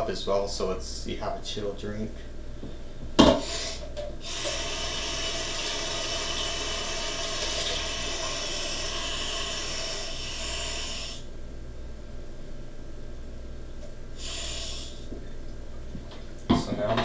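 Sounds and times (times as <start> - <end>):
faucet running water into a cup: 4.2 - 11.2.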